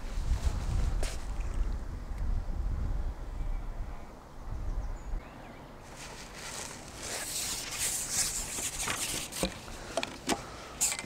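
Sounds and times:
wind rumbling on microphone: 0.0 - 9.9
rustling hiss: 5.8 - 11.0.

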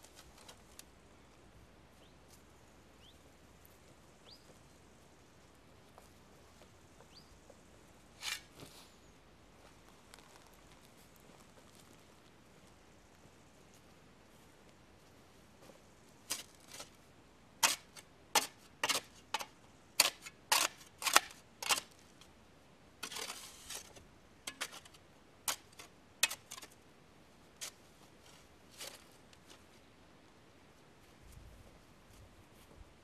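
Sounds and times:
short scraping: 8.2 - 9.0.

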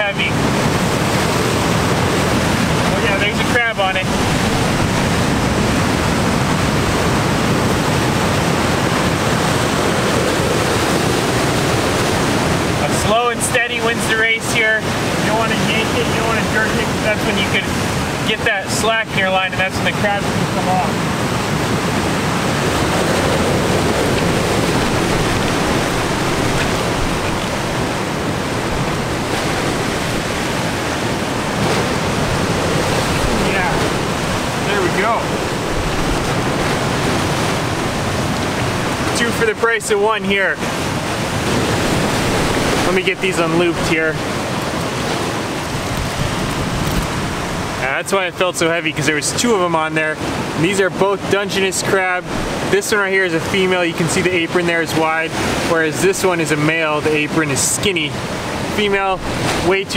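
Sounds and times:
wind on microphone: 0.0 - 39.3, 40.0 - 47.8
surf breaking on rocks: 0.0 - 59.9.

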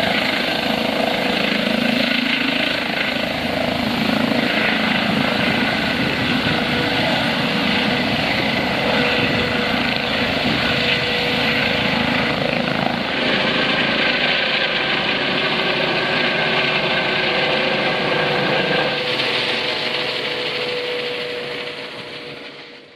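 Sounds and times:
helicopter turbine and rotor: 0.0 - 22.9.

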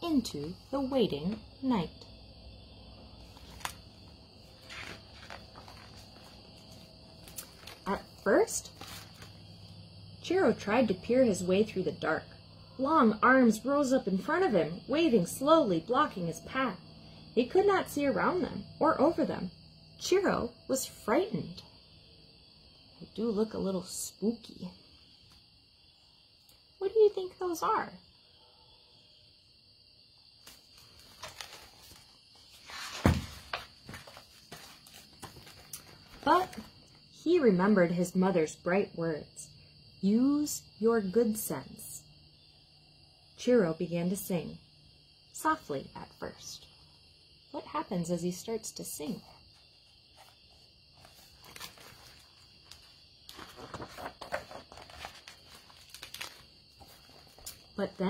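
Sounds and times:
insects trilling: 0.0 - 58.0
book pages turning: 3.2 - 9.5, 30.4 - 37.0, 49.2 - 57.7
handling rustles and clicks: 33.1 - 36.9.

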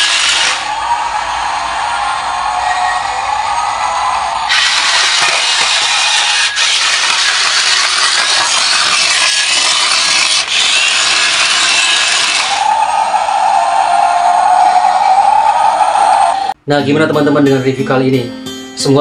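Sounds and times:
toy truck electric motor whirring: 0.0 - 0.7, 4.5 - 12.7.

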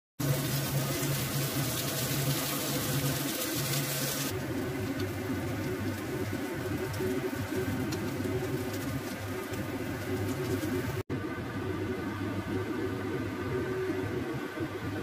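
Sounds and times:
soup boiling in pot: 0.2 - 11.1.

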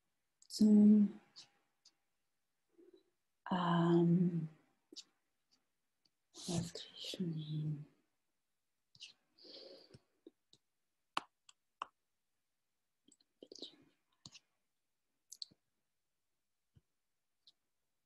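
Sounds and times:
soft breathing: 9.0 - 10.1.

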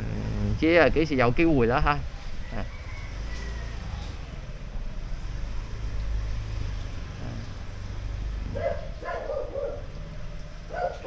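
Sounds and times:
low rumble of traffic: 0.0 - 11.0
dog barking: 8.5 - 10.0, 10.7 - 11.0.

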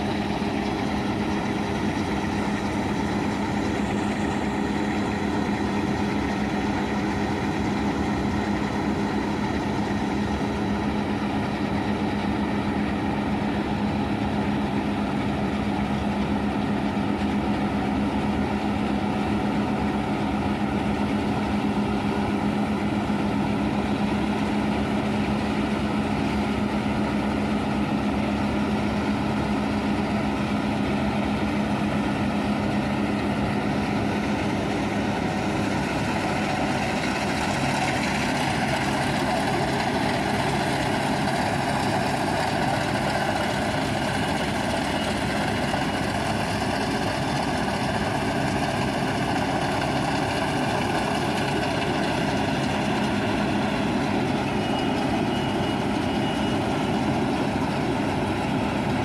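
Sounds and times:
combine harvester droning: 0.0 - 59.0.

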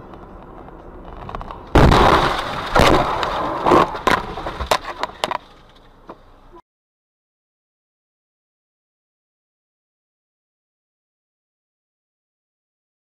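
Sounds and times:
crunching and sharp cracks: 0.0 - 5.9
car crash impact: 1.0 - 5.7.

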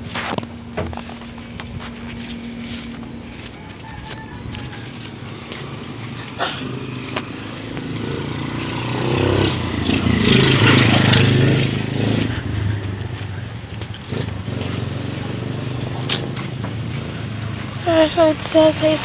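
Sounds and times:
vehicle engine passing by: 1.0 - 19.0.

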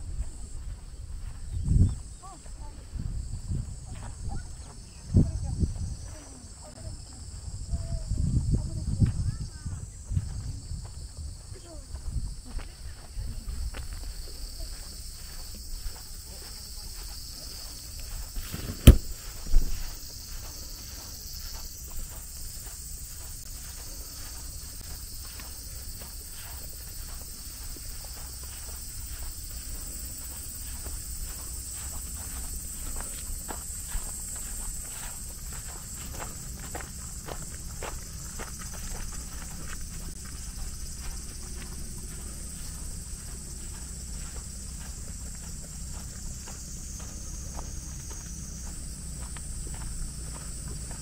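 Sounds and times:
footsteps on a hard path: 0.0 - 51.0
high-pitched insect chorus: 0.0 - 51.0
dull thump: 18.4 - 19.9
sharp click: 18.5 - 19.1.

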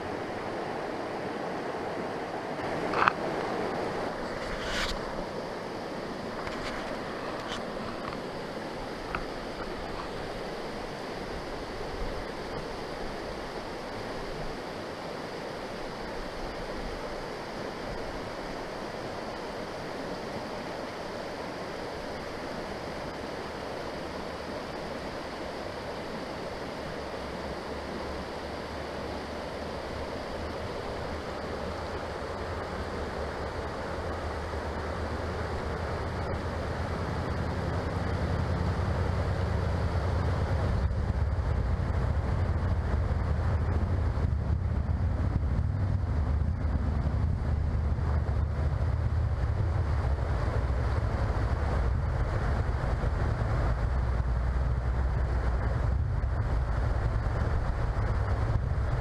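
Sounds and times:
creek water rushing over rocks: 0.0 - 40.5
wind rumble on microphone: 0.0 - 59.0.

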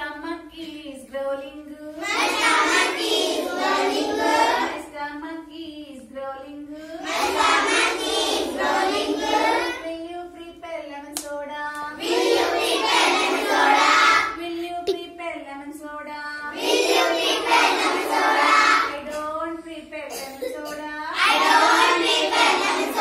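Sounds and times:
children singing in chorus: 2.0 - 4.8, 7.0 - 9.8, 11.9 - 14.4, 16.5 - 19.1, 21.2 - 23.0
woman's voice: 14.4 - 16.5, 18.9 - 21.2.

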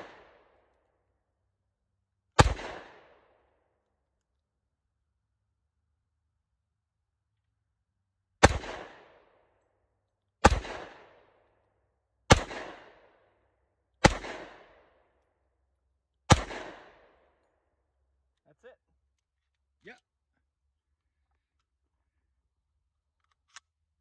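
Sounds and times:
pistol shots with echo: 0.0 - 0.6, 2.4 - 3.4, 8.4 - 9.3, 10.4 - 11.3, 12.3 - 13.2, 14.0 - 14.9, 16.3 - 17.2.

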